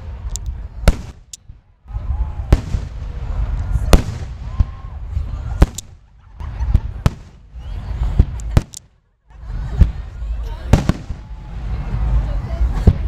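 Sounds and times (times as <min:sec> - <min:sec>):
fireworks bangs: 0:00.0 - 0:01.4, 0:02.2 - 0:09.0, 0:09.6 - 0:13.0
low rumble: 0:00.0 - 0:13.0.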